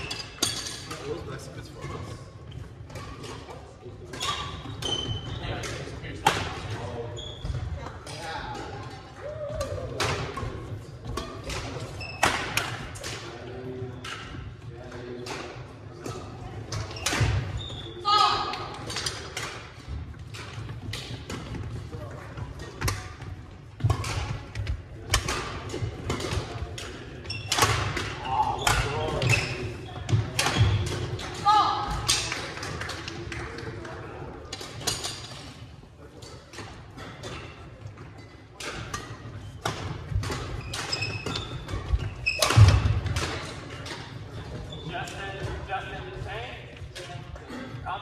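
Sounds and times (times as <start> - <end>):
sneaker squeaks: 4.1 - 5.8, 6.8 - 7.9, 10.4 - 12.8, 16.1 - 18.3, 27.2 - 31.2, 37.3 - 43.0, 43.7 - 45.5.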